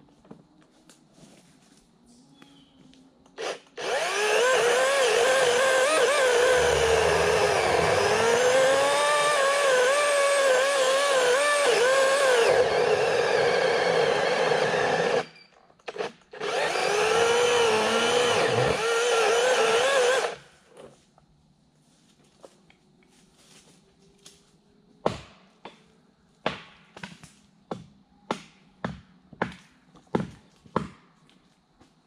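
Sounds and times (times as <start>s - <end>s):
electric chainsaw cutting wood: 3.4s - 20.5s.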